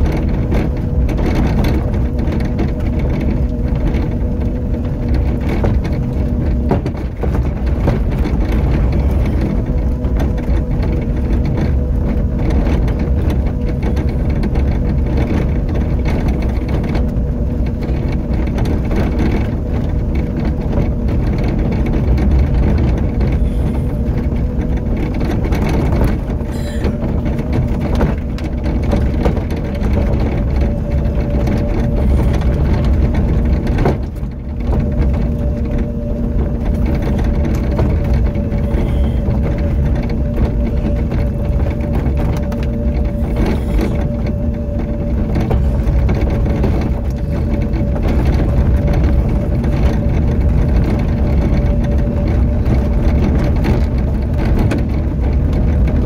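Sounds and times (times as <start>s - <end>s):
electric motor whine: 0.0s - 56.0s
vehicle rattling on dirt path: 0.0s - 56.0s.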